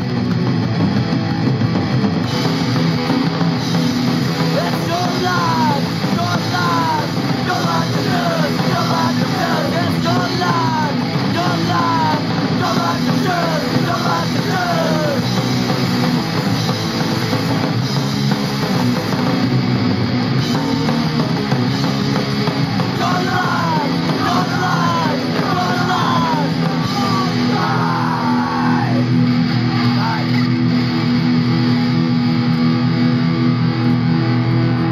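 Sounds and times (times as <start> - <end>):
punk band with guitars: 0.0 - 34.9
person singing: 4.5 - 15.3, 22.9 - 29.0.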